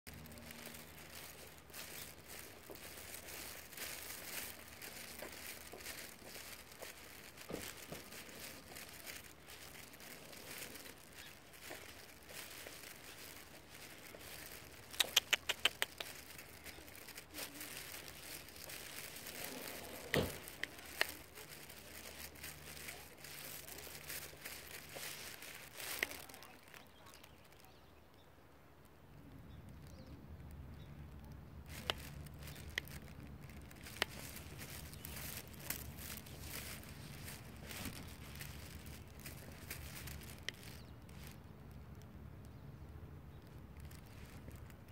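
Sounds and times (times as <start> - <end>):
light rustling: 0.1 - 27.3, 31.6 - 42.0
footsteps outdoors: 0.1 - 44.9
sharp clicks: 14.9 - 16.3.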